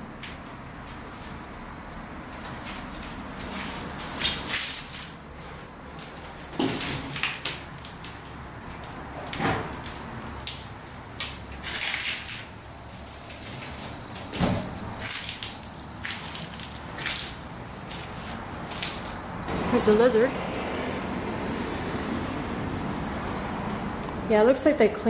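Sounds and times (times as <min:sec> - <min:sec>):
footsteps crunching over debris: 0:09.8 - 0:19.2.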